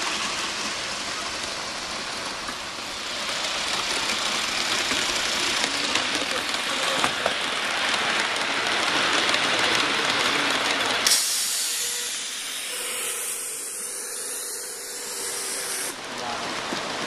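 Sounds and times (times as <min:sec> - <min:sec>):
steam locomotive hissing: 0:00.0 - 0:17.0
train cars rolling on track: 0:00.0 - 0:17.0.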